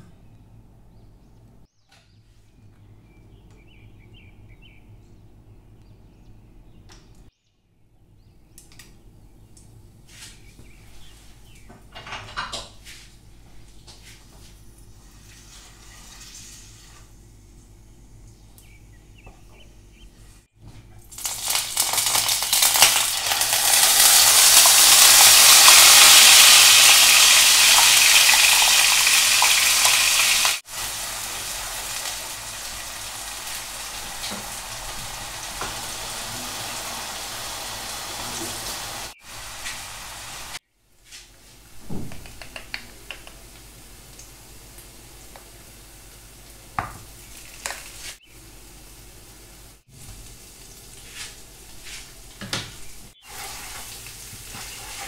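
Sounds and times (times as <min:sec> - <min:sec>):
chilli frying in oil: 0:14.8 - 0:17.3, 0:20.9 - 0:40.6, 0:43.0 - 0:55.0
paste sizzling in hot oil: 0:21.2 - 0:40.6, 0:53.2 - 0:55.0.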